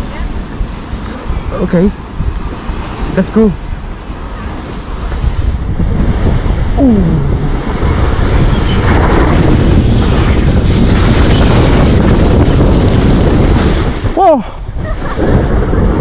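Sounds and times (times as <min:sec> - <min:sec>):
snow tube sliding on snow: 0:00.0 - 0:16.0
wind rushing over microphone: 0:00.0 - 0:16.0.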